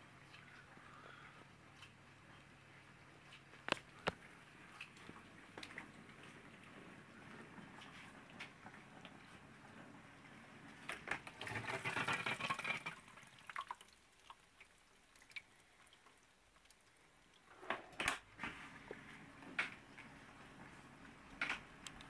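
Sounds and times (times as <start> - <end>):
water splashing inside dishwasher: 10.7 - 18.0
water dripping: 11.1 - 17.5.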